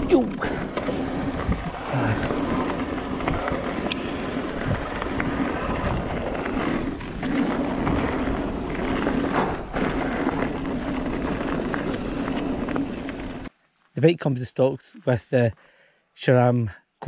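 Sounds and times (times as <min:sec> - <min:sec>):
bike clicks and rattles: 0:00.0 - 0:13.5
wind rush on microphone: 0:00.0 - 0:13.5
tyre noise on dirt trail: 0:00.0 - 0:14.7.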